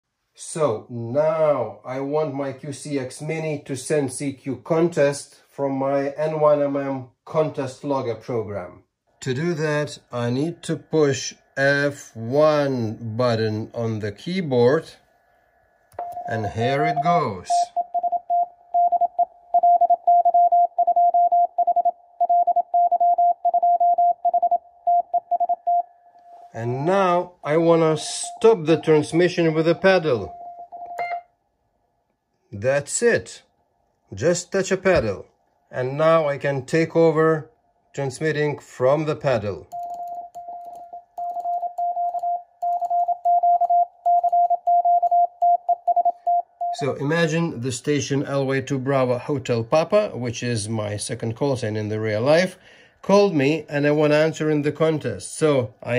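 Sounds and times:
morse code beeps: 16.0 - 26.4, 28.0 - 31.3, 39.7 - 46.9.

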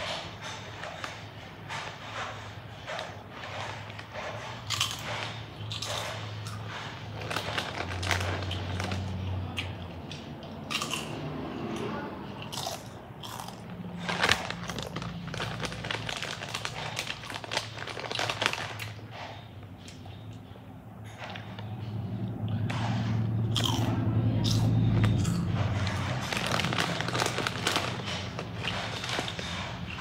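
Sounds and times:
chips crunching while chewed: 4.6 - 11.2, 12.4 - 20.0, 23.4 - 30.0.

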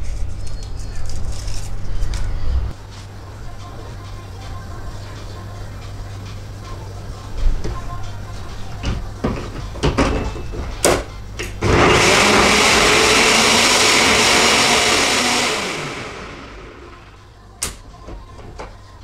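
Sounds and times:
blender motor running: 11.6 - 17.1.

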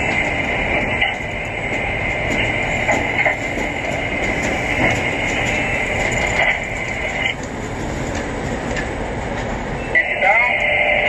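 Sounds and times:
high machine whine: 0.0 - 7.4
crane machinery rumbling: 0.0 - 11.0.

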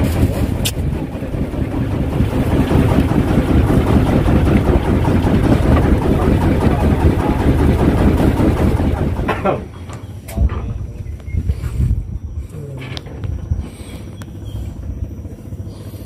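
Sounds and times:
boat engine rumbling: 0.0 - 16.0.

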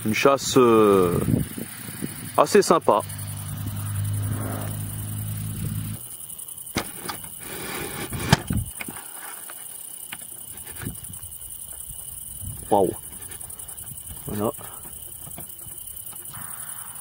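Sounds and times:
low engine hum: 1.1 - 6.0.

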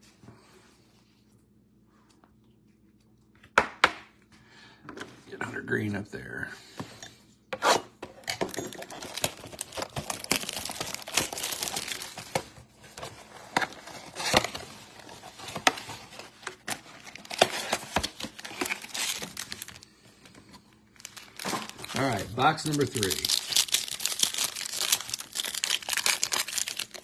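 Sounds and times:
plastic wrap crinkling: 8.7 - 19.8, 20.9 - 27.0
cardboard ripping: 16.7 - 19.8.

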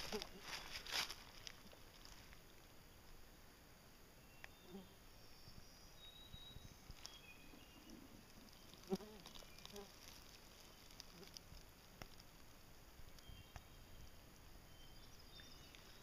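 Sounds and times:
faint high chirps: 4.1 - 11.4, 13.1 - 16.0.

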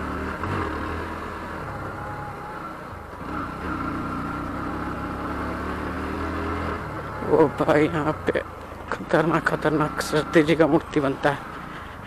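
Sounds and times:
motorcycle engine running: 0.0 - 8.4.

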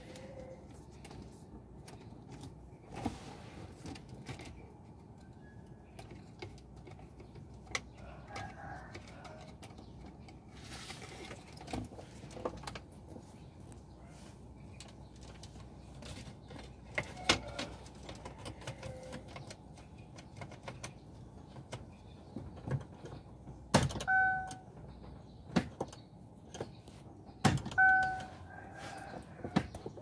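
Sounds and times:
short beep: 24.1 - 24.6, 27.8 - 28.3.

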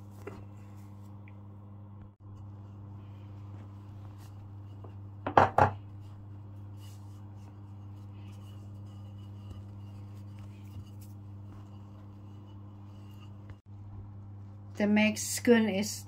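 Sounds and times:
steady low hum: 0.0 - 16.0
dough being rolled: 2.2 - 14.7
rolling pin knocking on wooden board: 4.8 - 5.9.

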